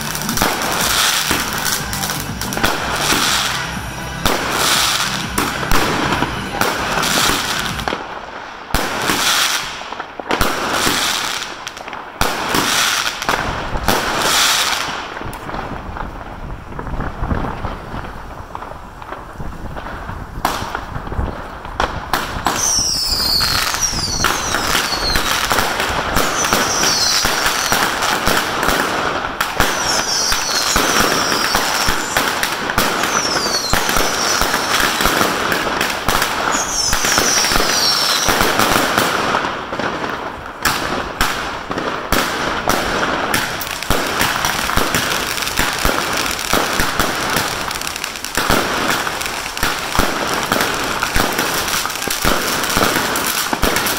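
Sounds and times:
fireworks whistles sliding down: 0.0s - 8.0s, 22.4s - 28.1s, 29.6s - 35.4s, 36.1s - 38.8s
fireworks bangs and crackling: 0.0s - 53.9s.

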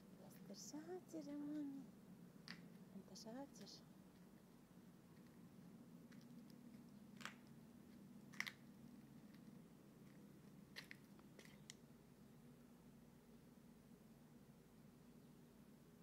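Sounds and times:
low steady hum: 0.0s - 16.0s
faint crackles and clicks: 0.2s - 2.9s, 3.6s - 4.5s, 5.1s - 11.9s.

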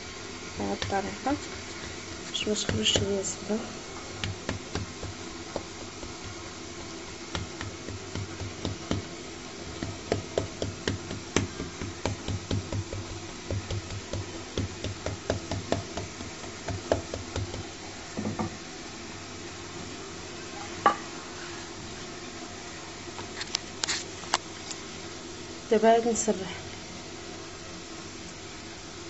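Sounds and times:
rolling pin tapping dough: 0.8s - 3.2s, 4.2s - 17.7s.

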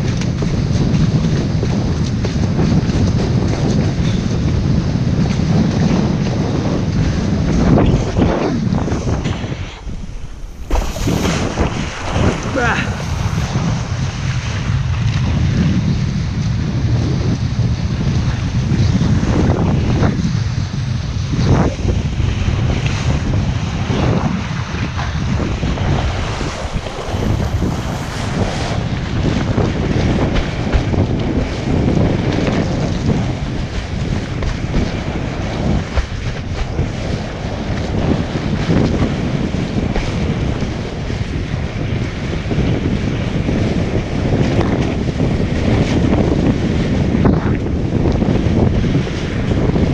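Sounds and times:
water rushing and slapping: 0.0s - 49.9s
wind buffeting microphone: 0.0s - 49.9s
water splashes: 7.9s - 15.4s, 24.4s - 38.0s
water spray hiss: 9.8s - 13.7s, 26.1s - 29.0s.

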